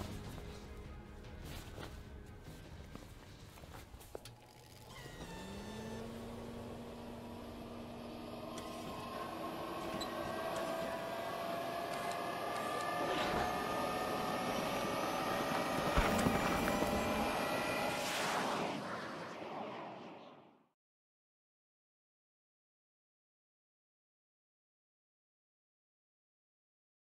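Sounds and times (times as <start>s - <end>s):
engine-like whine rising: 4.1s - 20.6s
rushing noise: 16.0s - 20.5s
whoosh: 16.0s - 20.7s.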